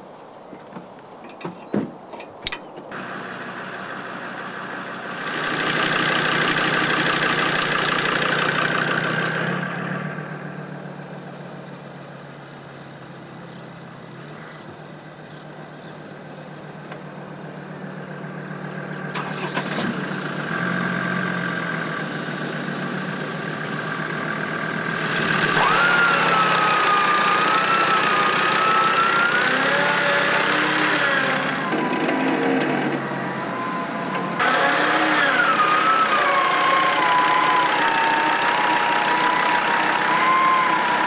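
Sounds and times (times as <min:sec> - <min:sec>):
car engine idling: 0:02.9 - 0:41.0
winch motor whining: 0:19.1 - 0:21.8, 0:22.5 - 0:41.0.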